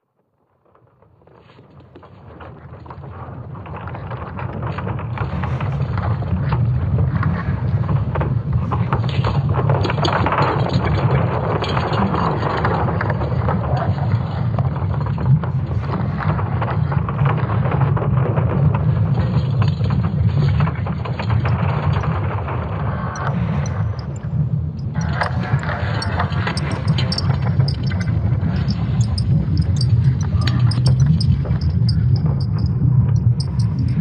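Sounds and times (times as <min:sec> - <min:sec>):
deep rumble: 0:20.7 - 0:34.0.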